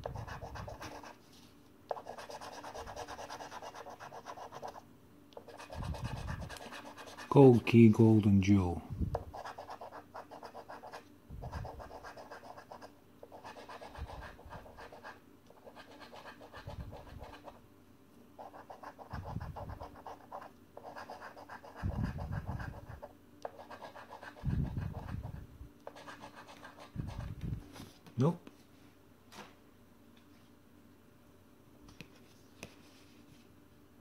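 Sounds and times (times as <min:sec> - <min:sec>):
coin scratching scratchcard: 0:11.7 - 0:17.5.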